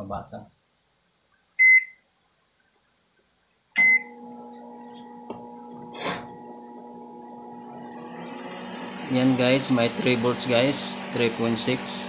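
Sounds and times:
microwave control panel beep: 1.6 - 2.0, 3.8 - 4.4
microwave electrical hum: 3.7 - 12.0.

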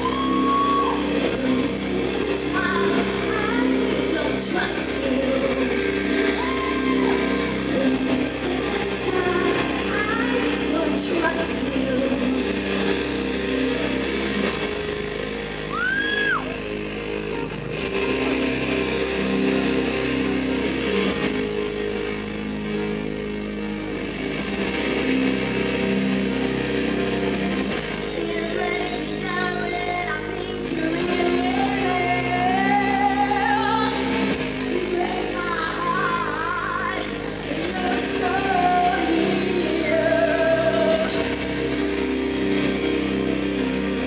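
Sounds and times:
woman singing: 0.0 - 13.0, 28.1 - 41.5
keyboard chords: 0.0 - 44.0.

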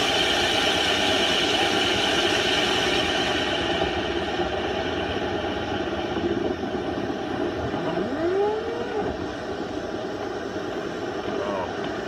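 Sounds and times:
vent cleaning tool running: 0.0 - 12.0
rising tone: 7.6 - 9.2.

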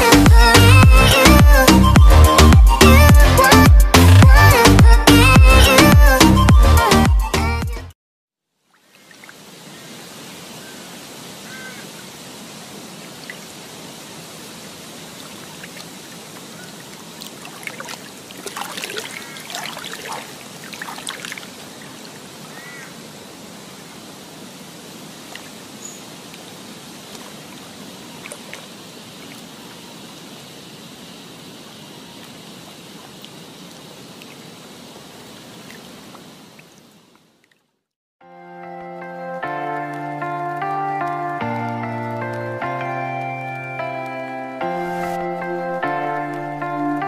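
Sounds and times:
running water: 8.6 - 37.8
birds calling: 8.8 - 12.1, 15.2 - 23.0, 25.3 - 26.4.

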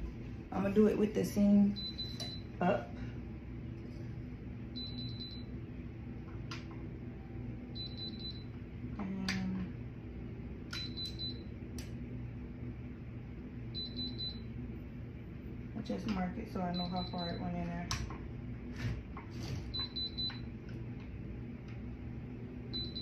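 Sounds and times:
heat press beeping: 22.8 - 23.0.

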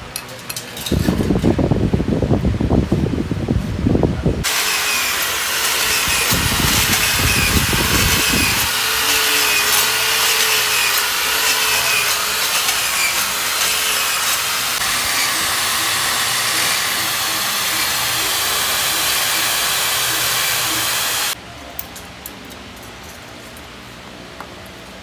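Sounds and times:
electric drill grinding metal: 4.4 - 21.4.

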